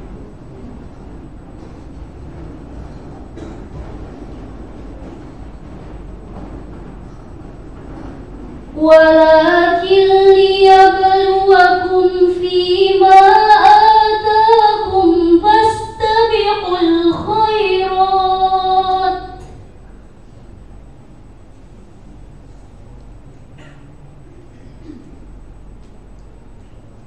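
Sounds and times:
girl chanting melodically: 8.8s - 19.6s.

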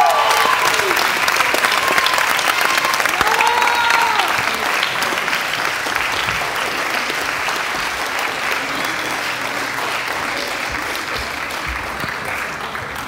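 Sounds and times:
voices cheering: 0.0s - 7.4s
audience clapping: 0.0s - 13.0s.

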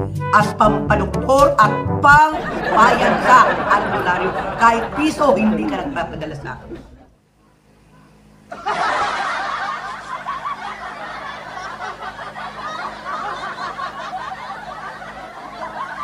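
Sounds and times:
people laughing and snickering: 2.4s - 7.1s, 8.5s - 16.0s.

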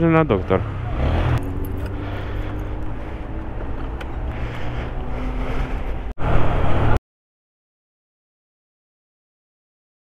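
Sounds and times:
road noise: 0.0s - 7.0s
motorcycle engine running at low revs: 0.5s - 5.8s.

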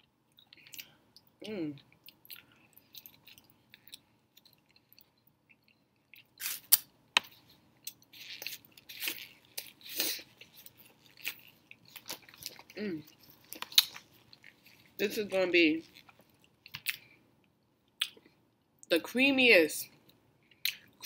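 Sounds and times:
chewing: 0.3s - 6.4s, 7.8s - 15.0s.

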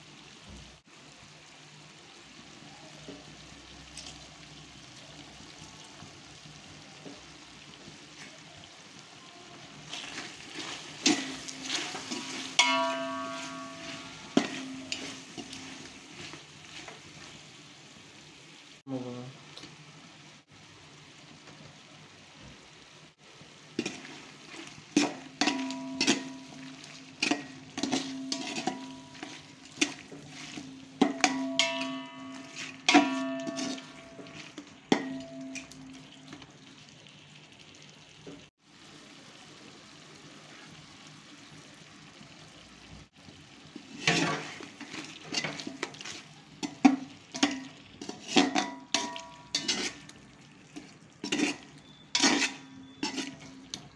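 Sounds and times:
soft sizzle: 0.0s - 53.9s
metal spatula scraping metal pot: 9.8s - 17.4s, 23.8s - 36.5s, 43.8s - 53.9s.

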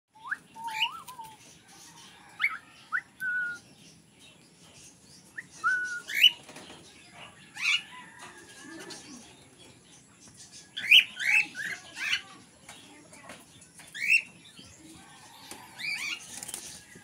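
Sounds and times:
cockatiel whistling and chirping: 0.2s - 1.3s.

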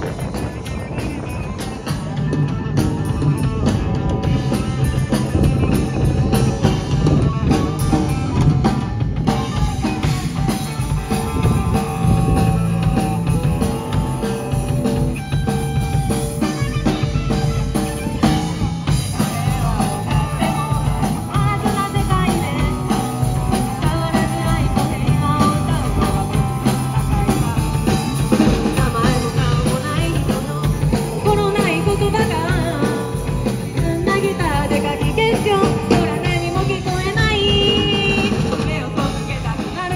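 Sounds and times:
bass guitar: 0.0s - 39.9s
distorted electric guitar: 0.0s - 39.9s
drum kit: 0.0s - 39.9s
person singing: 19.0s - 39.9s.

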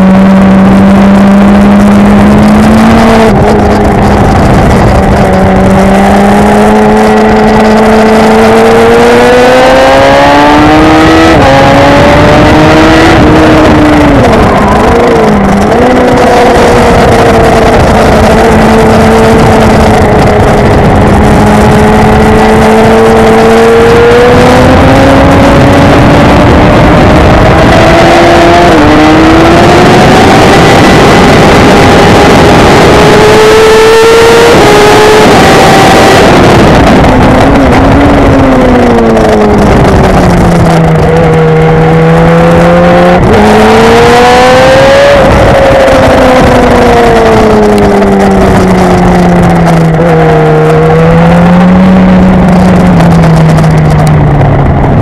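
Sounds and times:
motorcycle engine accelerating: 0.0s - 55.0s
wind rush on microphone: 0.0s - 55.0s.

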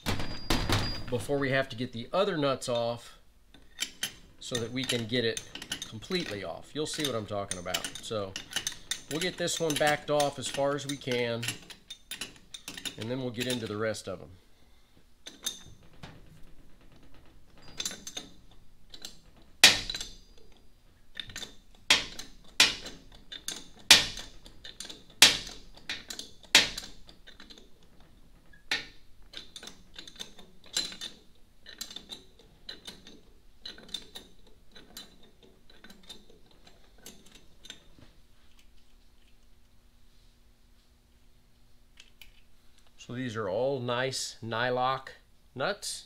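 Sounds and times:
wrench clinking on nuts: 3.6s - 13.8s, 15.2s - 20.6s, 21.2s - 37.9s.

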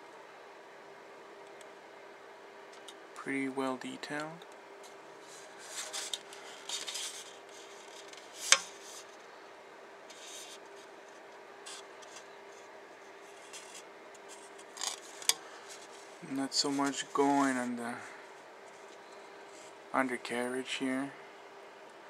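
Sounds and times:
faint steady hum: 0.0s - 22.0s
plastic parts rubbing and rustling: 5.2s - 9.1s, 13.3s - 17.6s.

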